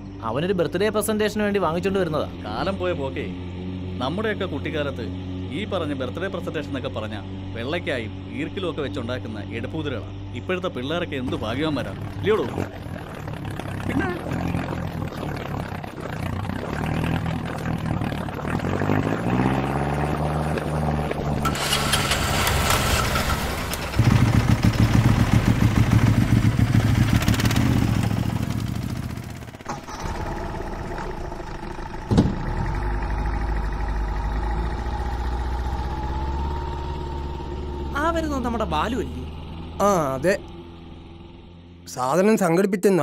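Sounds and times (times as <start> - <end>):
auto-rickshaw engine idling: 4.0 - 19.0, 20.3 - 42.1
boat engine chugging: 9.1 - 19.0, 21.3 - 36.1
sharp knock: 32.1 - 32.6.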